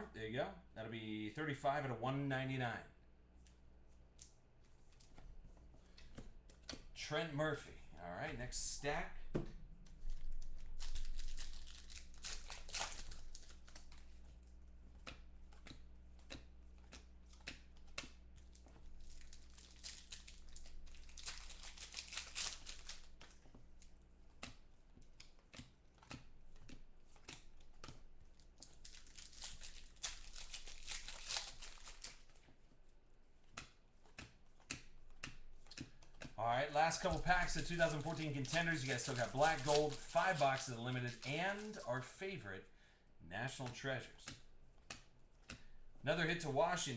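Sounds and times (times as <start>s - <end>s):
faint low hum: 0.0s - 46.9s
foil wrappers tearing and crinkling: 10.0s - 14.2s, 18.4s - 23.4s, 28.6s - 32.4s, 36.7s - 41.9s
cards clicking and flicking: 15.0s - 23.6s, 33.5s - 41.9s.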